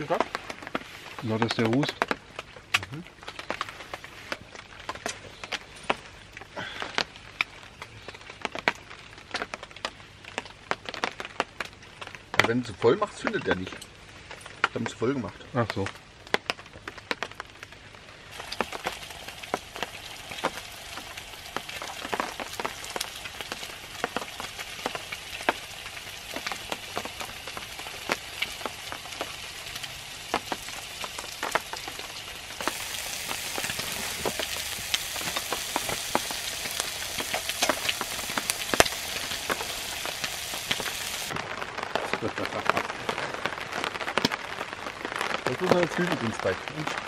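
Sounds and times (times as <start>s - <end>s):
food sizzling in a pan: 18.3s - 41.4s.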